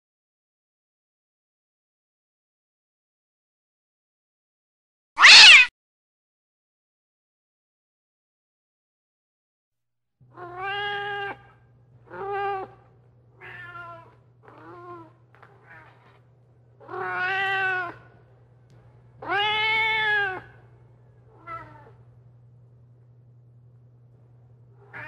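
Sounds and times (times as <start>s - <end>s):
cat meowing: 5.2s - 5.7s, 10.3s - 12.8s, 13.4s - 16.2s, 16.8s - 18.1s, 19.2s - 20.6s, 21.4s - 22.0s
low electrical hum: 10.2s - 25.0s.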